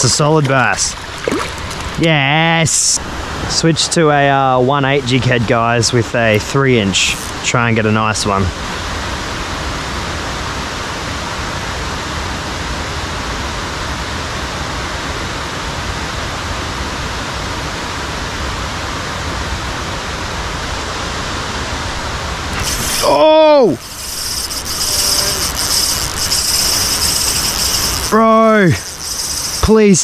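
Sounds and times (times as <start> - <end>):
water rushing: 0.0 - 9.4, 20.1 - 30.0.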